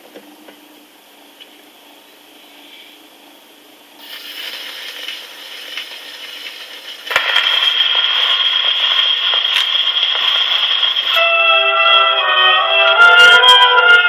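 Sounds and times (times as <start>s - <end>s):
record surface crackle and hiss: 0.0s - 11.2s
orchestra playing held chords: 11.2s - 14.0s.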